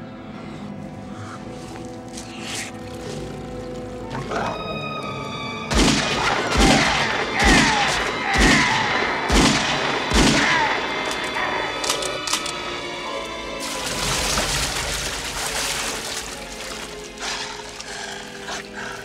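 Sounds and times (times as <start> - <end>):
dramatic film score music: 0.0 - 19.0
gunshots with deep boom: 5.7 - 10.9.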